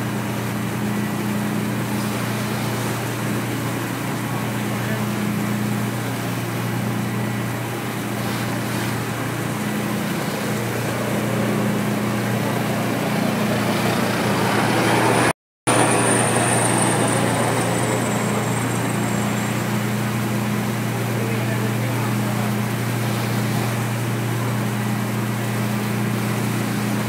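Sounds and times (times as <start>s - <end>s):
boat engine droning: 0.0s - 27.0s
faint high whine: 0.0s - 27.0s
water rushing along hull: 0.0s - 27.0s.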